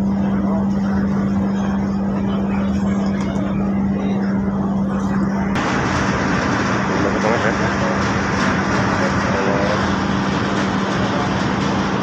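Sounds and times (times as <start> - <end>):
ship engines humming: 0.0 - 12.0
rushing noise: 5.6 - 12.0.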